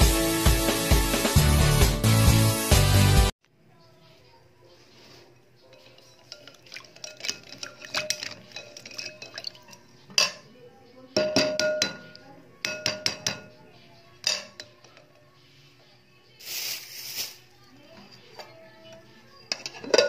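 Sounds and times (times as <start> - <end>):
eggs clinking against glass bowl: 5.7 - 10.5, 11.2 - 13.6, 14.2 - 15.1, 19.4 - 20.0.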